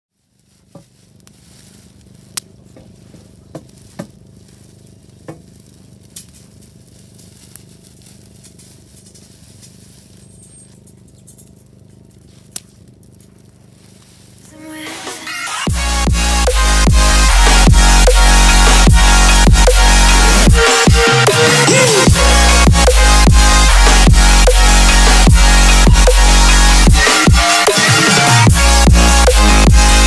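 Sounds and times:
fire crackling: 0.1 - 30.0
sharp fire pops: 0.2 - 21.4.

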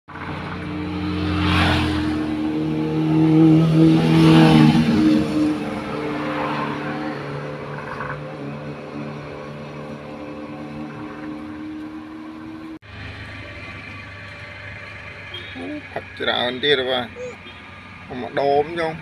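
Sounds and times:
vehicles passing: 0.1 - 19.0
vehicle engine running: 7.2 - 19.0.

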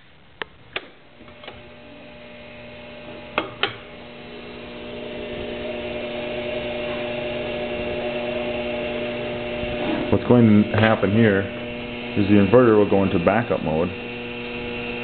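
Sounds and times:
electrical hum with held tones: 0.0 - 15.0
circuit breaker clicks: 0.4 - 1.6, 3.3 - 3.8.

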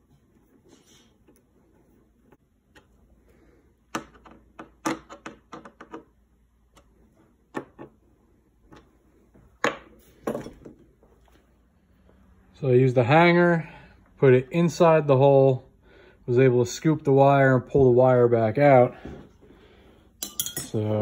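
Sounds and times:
tools handled on wooden workbench: 8.7 - 11.4.

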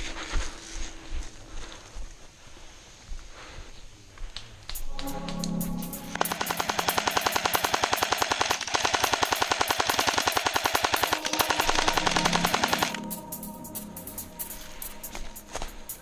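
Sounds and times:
airsoft machine gun firing: 6.1 - 13.2.

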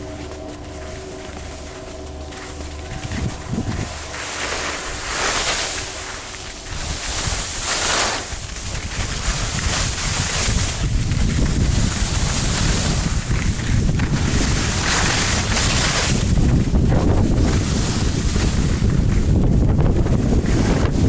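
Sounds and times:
skis scraping over snow: 0.0 - 21.0
wind buffeting microphone: 0.0 - 21.0.

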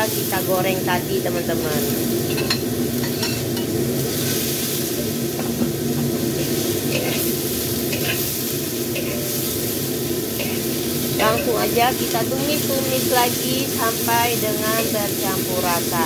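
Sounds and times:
vegetables sizzling in oil: 0.0 - 16.0
metal spatula scraping a wok: 2.3 - 4.8, 6.3 - 11.5.

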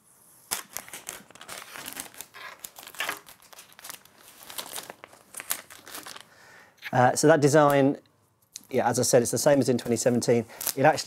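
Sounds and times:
plastic film peeling and crinkling: 0.4 - 6.3, 10.5 - 11.0.

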